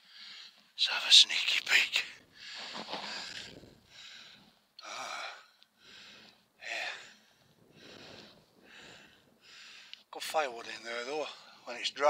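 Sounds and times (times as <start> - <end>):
man breathing: 0.0 - 0.7, 2.3 - 10.1.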